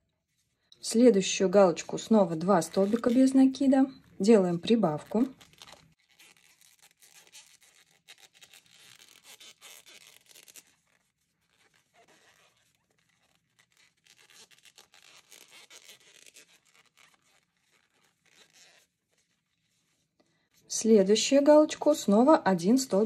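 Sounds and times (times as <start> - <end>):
crochet hook rustling yarn: 0.0 - 8.3.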